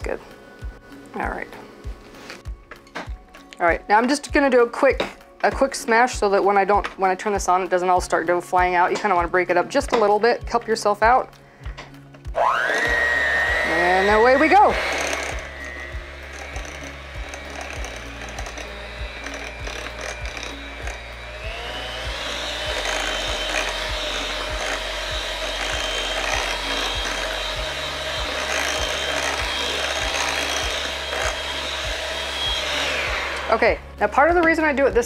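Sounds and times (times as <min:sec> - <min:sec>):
electric hand mixer whining: 0:12.3 - 0:34.5.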